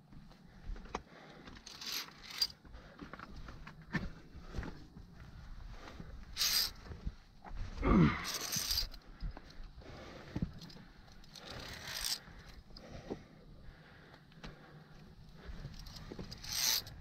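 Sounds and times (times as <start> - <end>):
gear scraping on rock: 6.4 - 6.8, 8.2 - 8.9, 11.4 - 12.2, 15.8 - 17.0.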